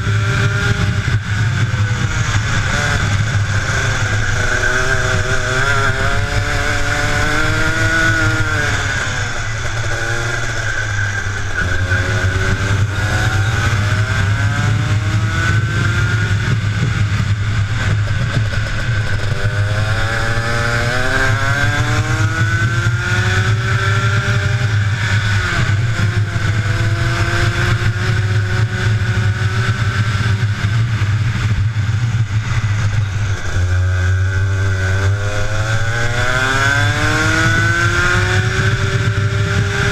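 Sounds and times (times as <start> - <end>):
kart engine revving: 0.0 - 39.9.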